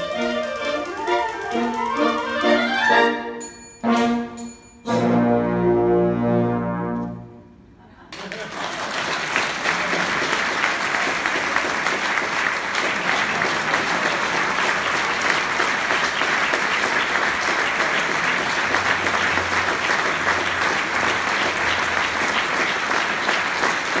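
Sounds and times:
audience applause: 0.0s - 2.9s, 8.1s - 24.0s.

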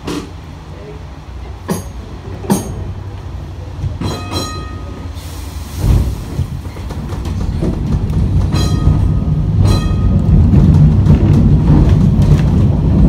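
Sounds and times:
tram running rumble: 0.0s - 13.0s
metallic wheel clanks: 4.0s - 5.1s, 7.3s - 10.6s.

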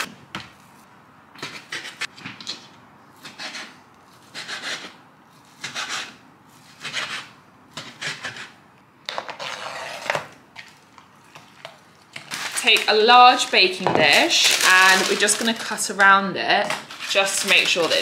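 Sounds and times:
knife scraping board: 3.2s - 10.3s.

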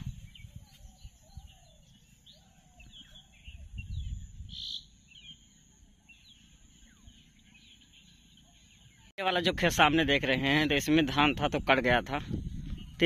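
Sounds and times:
small birds chirping: 0.0s - 13.0s.

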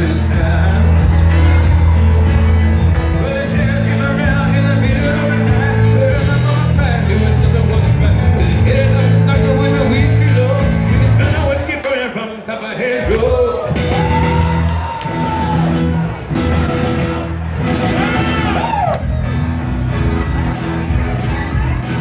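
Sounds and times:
held bass notes: 0.0s - 11.7s, 13.0s - 22.0s
live band music: 0.0s - 12.1s, 13.0s - 22.0s
person singing: 0.0s - 15.8s.

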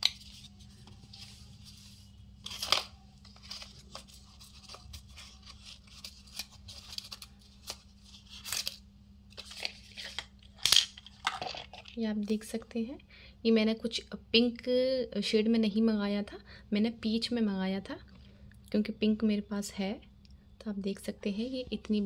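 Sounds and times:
paper packaging rustling: 0.0s - 12.0s.

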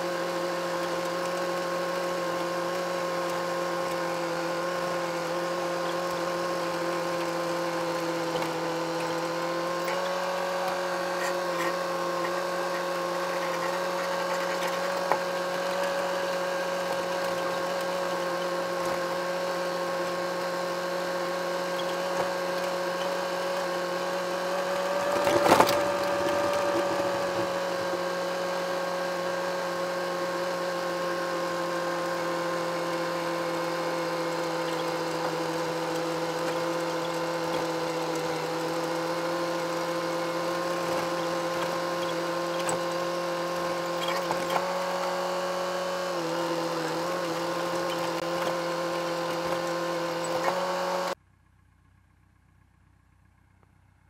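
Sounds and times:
mechanical whine: 0.0s - 51.2s
tractor diesel engine running: 0.0s - 54.0s.

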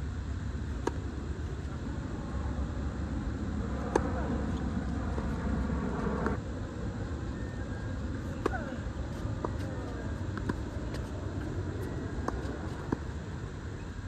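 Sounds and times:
low rumble: 0.0s - 13.8s
tennis ball struck by racket: 0.8s - 1.0s, 3.8s - 4.2s.

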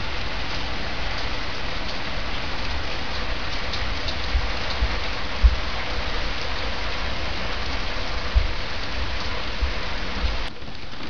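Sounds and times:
heavy rain pouring: 0.0s - 11.0s
low thumps: 8.3s - 8.6s.

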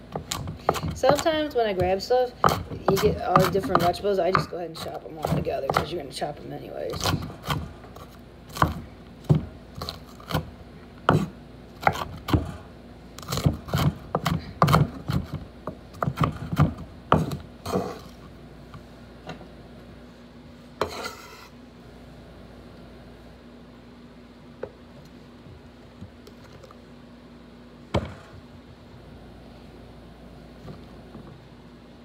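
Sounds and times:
knife chopping on wooden board: 0.1s - 5.9s, 7.0s - 10.5s, 11.1s - 12.6s, 13.2s - 18.0s.

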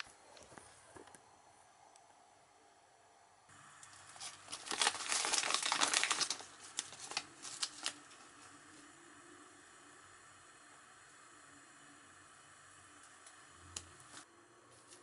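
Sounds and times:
plastic bag crinkling: 3.9s - 8.5s.

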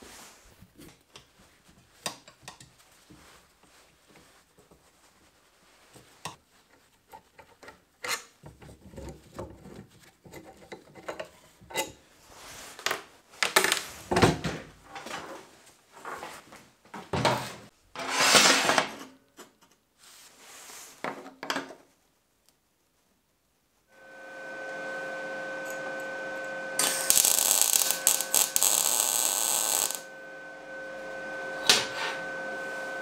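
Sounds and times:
long scrape: 24.0s - 33.0s.

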